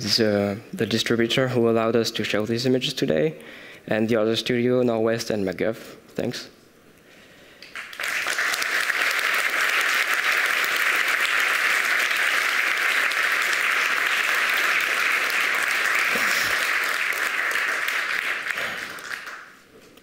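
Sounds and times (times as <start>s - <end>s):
audience applause: 7.7s - 19.6s.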